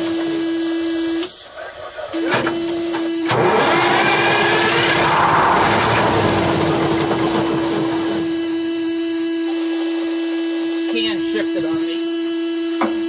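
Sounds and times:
steady whine: 0:00.0 - 0:13.0
diesel engine cranking: 0:03.3 - 0:08.3.

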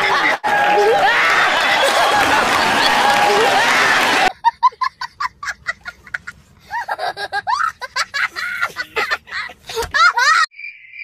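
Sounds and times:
young boy laughing: 0:02.4 - 0:10.5.

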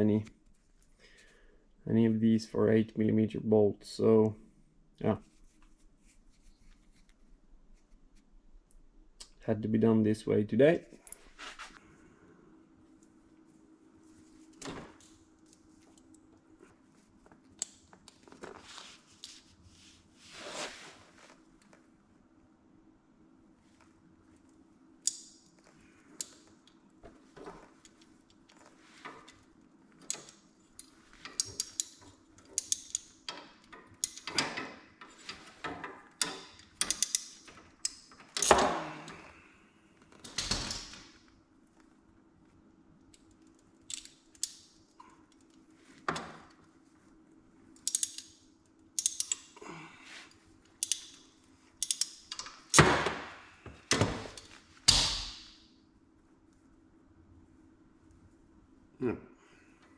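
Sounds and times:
faint steady hum: 0:00.0 - 0:59.9
hand tools clicking and rattling: 0:30.0 - 0:38.6, 0:50.8 - 0:51.2.

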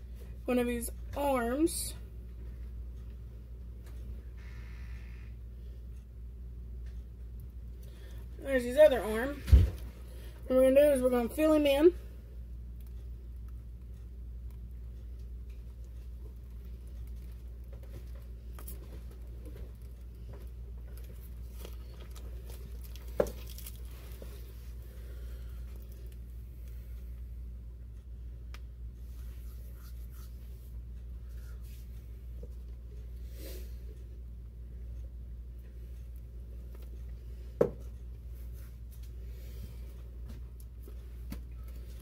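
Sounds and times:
low steady hum: 0:00.0 - 0:42.0
piping bag squishing: 0:16.8 - 0:24.8
plastic bag rustling and crinkling: 0:20.9 - 0:24.7.

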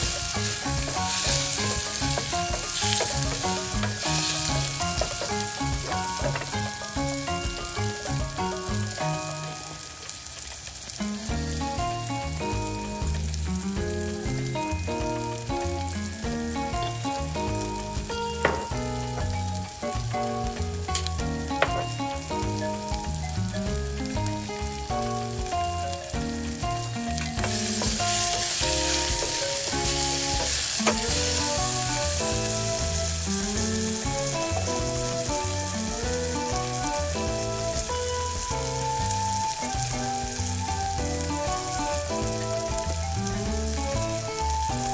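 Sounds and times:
wooden spatula clicking on pan: 0:00.0 - 0:08.4, 0:27.2 - 0:31.8
melodic backing music: 0:00.0 - 0:44.9
vegetables sizzling in a pan: 0:00.0 - 0:44.9.

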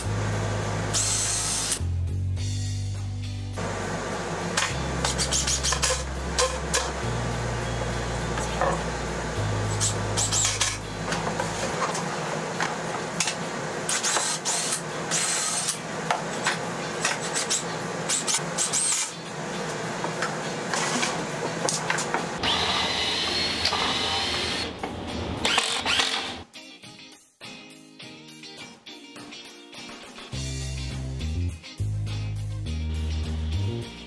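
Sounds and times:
cordless drill driving screws: 0:13.9 - 0:15.8, 0:22.4 - 0:24.7, 0:25.4 - 0:26.4.

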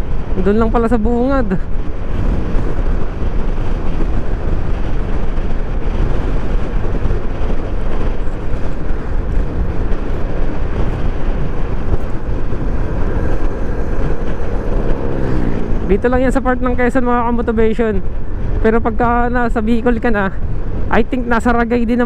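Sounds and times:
wind rush on microphone: 0:00.0 - 0:22.0
scooter engine cruising: 0:01.8 - 0:16.6.

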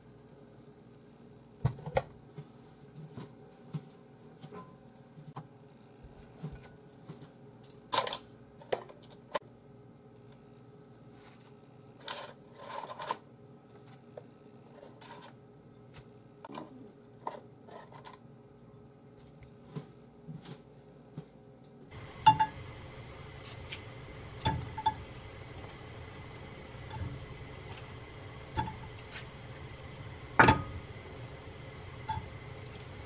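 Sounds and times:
steady hiss: 0:21.9 - 0:33.0.

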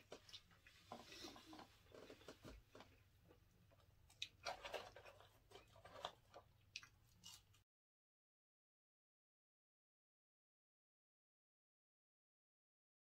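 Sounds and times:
faint chewing: 0:00.0 - 0:07.6.

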